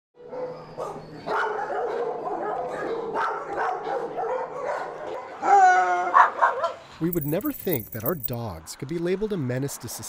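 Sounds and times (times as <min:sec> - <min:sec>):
dog barking: 0:00.2 - 0:06.8.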